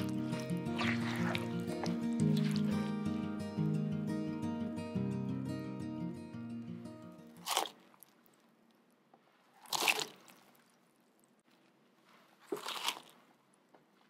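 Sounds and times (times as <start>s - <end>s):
strawberries splashing into water: 0.8s - 2.7s, 9.6s - 10.4s.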